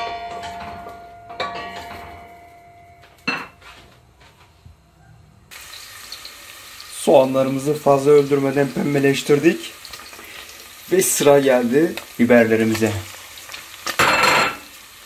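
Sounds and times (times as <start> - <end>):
onions sizzling in oil: 5.5 - 15.0.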